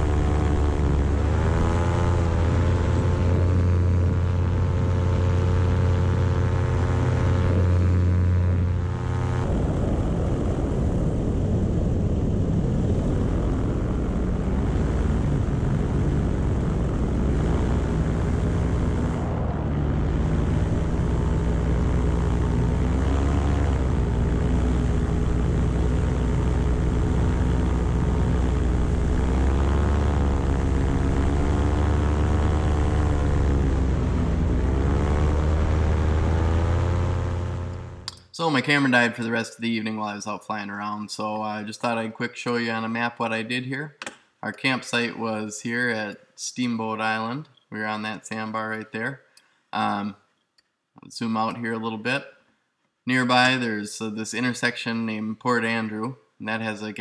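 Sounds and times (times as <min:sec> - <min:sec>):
paramotor engine and propeller: 0:00.0 - 0:39.2.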